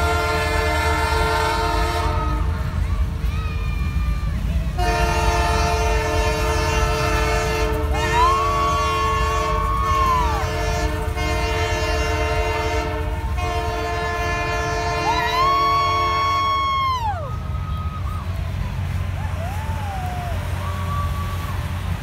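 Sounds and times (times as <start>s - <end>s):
locomotive air horn: 0.0s - 2.8s, 4.6s - 18.2s
train cars rumbling past: 0.0s - 22.0s.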